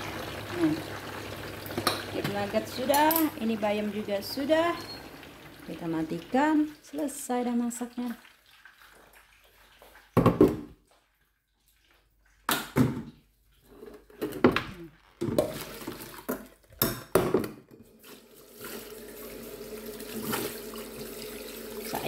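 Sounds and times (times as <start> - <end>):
tap running water: 0.0 - 7.2, 18.0 - 22.0
pot and strainer clattering: 1.7 - 3.4.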